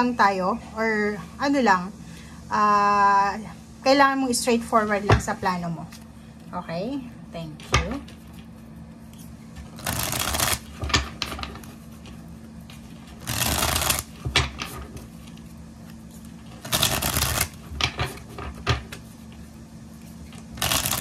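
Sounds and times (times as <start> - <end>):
cards riffle-shuffled: 9.0 - 19.1, 20.3 - 21.0
cards tapped and squared: 9.6 - 11.7, 13.2 - 15.1, 16.6 - 19.0, 20.4 - 21.0.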